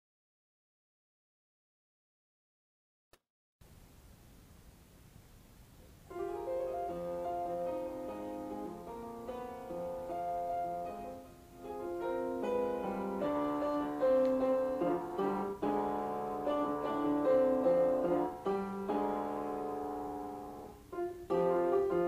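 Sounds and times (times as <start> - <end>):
piano melody: 6.1 - 22.0.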